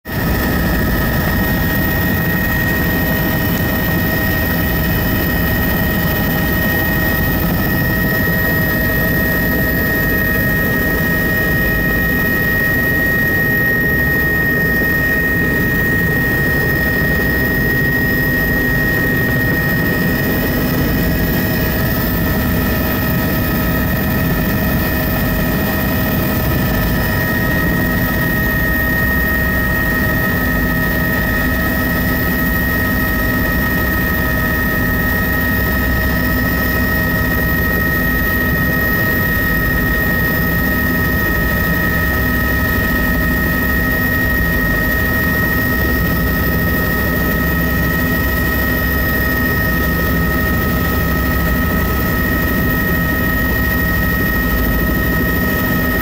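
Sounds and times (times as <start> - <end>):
helicopter rotor noise: 0.1 - 56.0
helicopter turbine whine: 0.1 - 56.0.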